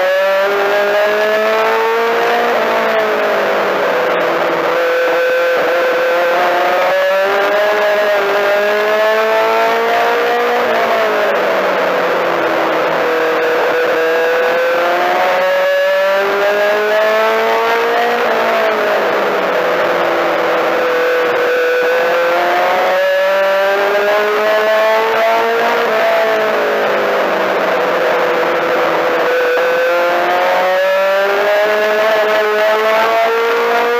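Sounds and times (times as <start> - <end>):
race car engine at full throttle: 0.0 - 33.9.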